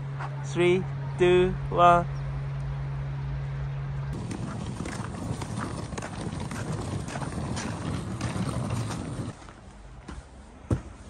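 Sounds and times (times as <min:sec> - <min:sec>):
suitcase wheels grinding over snow: 0:04.2 - 0:09.7
footsteps crunching on snow: 0:04.2 - 0:11.0.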